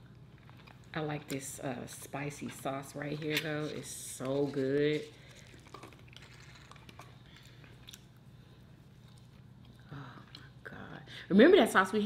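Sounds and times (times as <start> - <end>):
chewing: 0.0 - 0.9, 4.4 - 10.6
steady low hum: 0.0 - 12.0.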